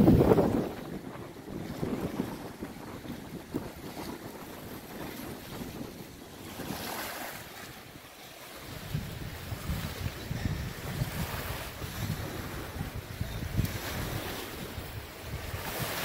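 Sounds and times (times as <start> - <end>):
water lapping against bank: 0.0 - 16.0
wind buffeting microphone: 0.0 - 16.0.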